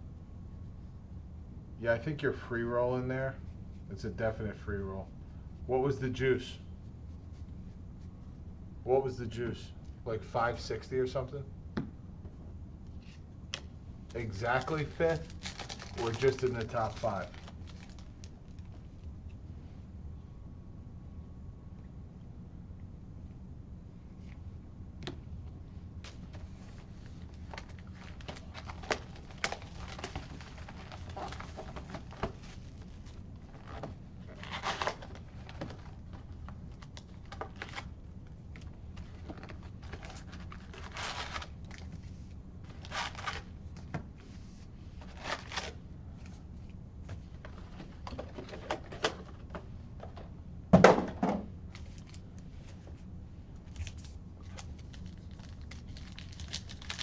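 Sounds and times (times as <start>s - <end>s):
cards rustling: 12.9s - 19.0s, 26.0s - 37.9s, 38.6s - 43.6s.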